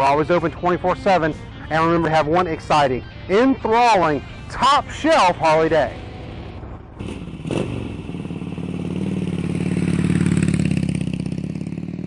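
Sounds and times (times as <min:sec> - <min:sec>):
motorcycle engine running: 0:07.0 - 0:12.0.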